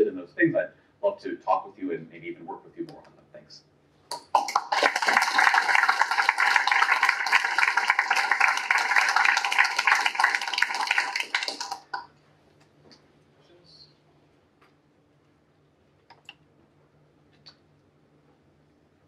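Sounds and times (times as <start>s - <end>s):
audience applauding: 4.1s - 12.1s.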